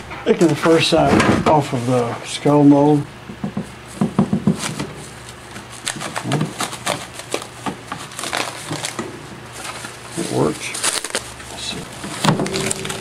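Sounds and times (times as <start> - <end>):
plastic sheeting crinkling: 4.5 - 13.0.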